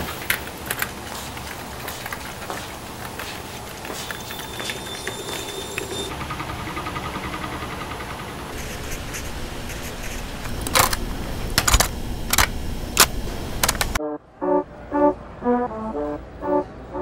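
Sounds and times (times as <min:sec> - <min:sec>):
steady hum: 0:00.0 - 0:14.0
music: 0:14.0 - 0:17.0.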